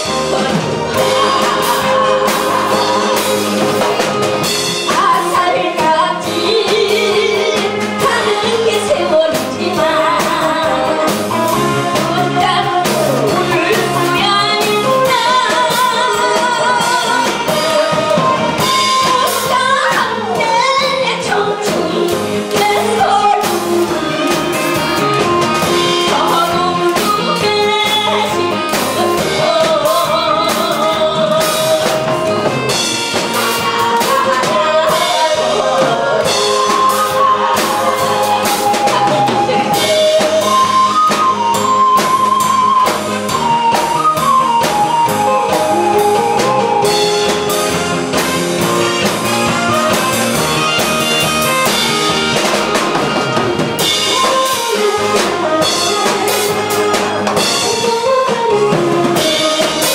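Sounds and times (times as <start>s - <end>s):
backing music with drum beat: 0.0s - 59.9s
woman singing into a microphone: 0.1s - 3.6s, 4.8s - 32.7s, 33.3s - 42.9s, 53.9s - 59.9s.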